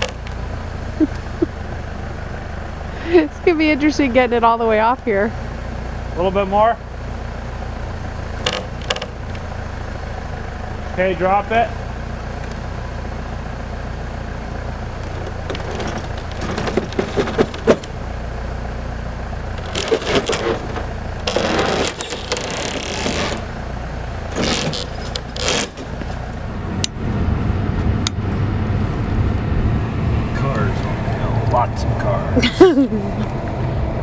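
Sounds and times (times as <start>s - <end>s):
loader engine rumbling: 0.0s - 34.0s
road rumble of towing vehicle: 0.0s - 34.0s
scraping and clunking: 15.0s - 18.0s, 19.5s - 23.5s, 24.3s - 26.3s.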